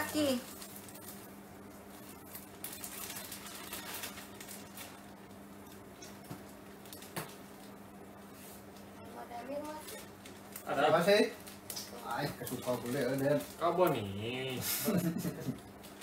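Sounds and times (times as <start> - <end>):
low steady hum: 0.0 - 16.0
rustling of fabric in boxes: 2.6 - 5.1.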